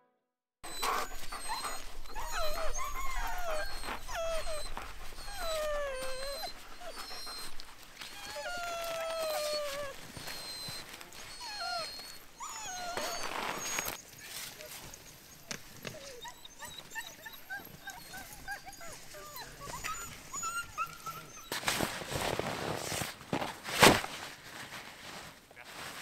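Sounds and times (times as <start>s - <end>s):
sled dogs whining and howling: 0.6s - 22.5s.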